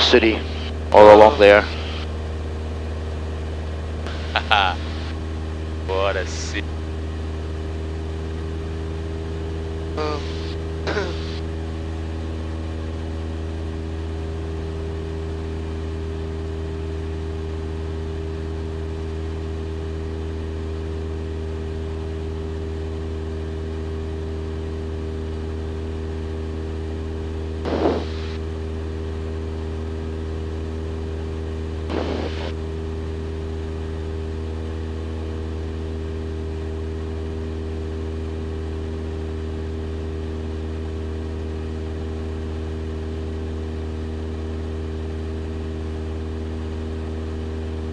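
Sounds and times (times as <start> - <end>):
propeller plane engine droning: 0.0 - 47.9
short bursts of noise: 27.7 - 28.4, 31.9 - 32.5.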